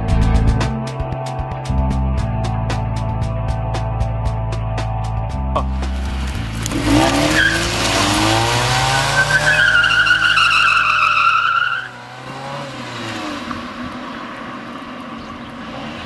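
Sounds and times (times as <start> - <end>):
car engine revving: 5.6 - 16.0
tyres squealing: 6.9 - 12.0.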